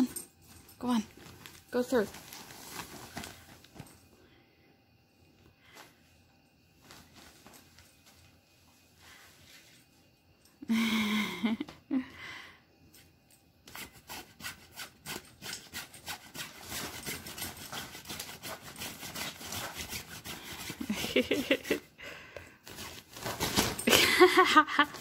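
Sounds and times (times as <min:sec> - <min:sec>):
fabric tunnel rustling and scratching: 0:00.8 - 0:03.9, 0:22.7 - 0:23.9.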